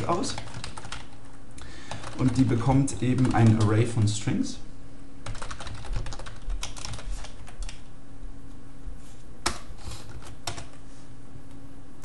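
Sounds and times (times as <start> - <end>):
keyboard typing: 0.0 - 1.3, 1.9 - 3.8, 5.2 - 7.9, 9.4 - 10.8
faint steady hum: 0.0 - 12.0.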